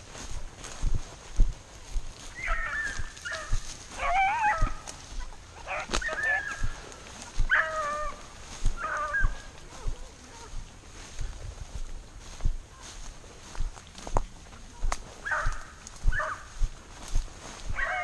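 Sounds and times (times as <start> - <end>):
footsteps through tall grass: 0.0 - 18.0
dogs baying: 2.4 - 10.5, 15.2 - 16.6, 17.7 - 18.0.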